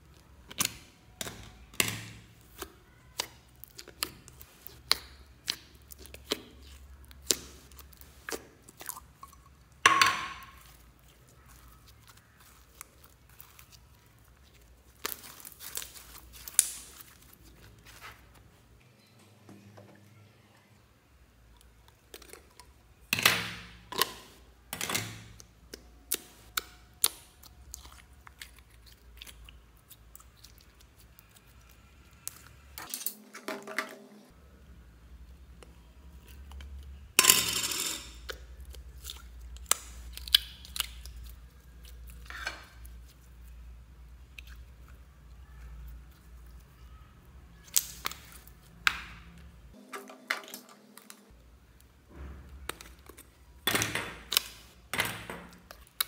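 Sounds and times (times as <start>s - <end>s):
slime handled by hand: 10.4s - 18.6s.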